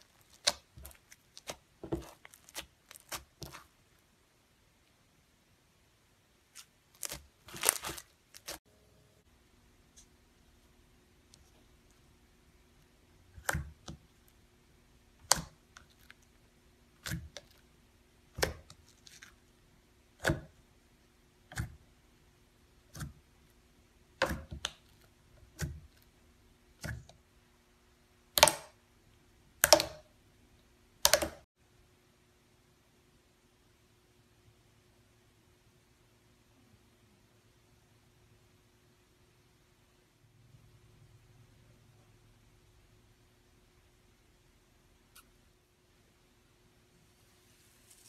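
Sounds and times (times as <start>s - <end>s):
slime popping: 0.0s - 3.7s, 6.5s - 8.6s.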